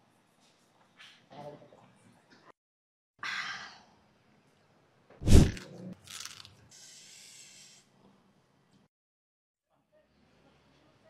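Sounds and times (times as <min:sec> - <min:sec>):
loud sudden bite: 0:05.2 - 0:06.3
crunching and chewing snacks: 0:05.5 - 0:06.6.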